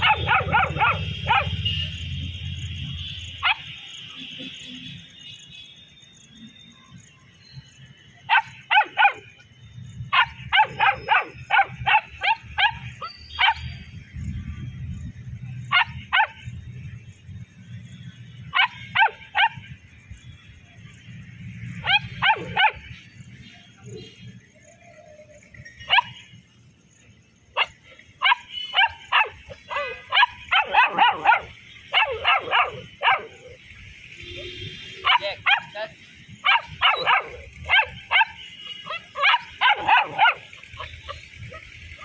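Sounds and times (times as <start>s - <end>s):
puppy barking in high yaps: 0.0s - 1.6s, 8.3s - 9.2s, 10.1s - 13.7s, 15.7s - 16.4s, 18.5s - 19.6s, 21.8s - 22.8s, 25.9s - 26.2s, 27.6s - 33.6s, 35.0s - 35.8s, 36.4s - 41.7s.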